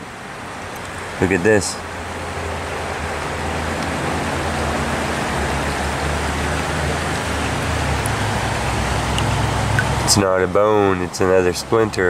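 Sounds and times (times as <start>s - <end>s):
creek water running over rocks: 0.0s - 12.0s.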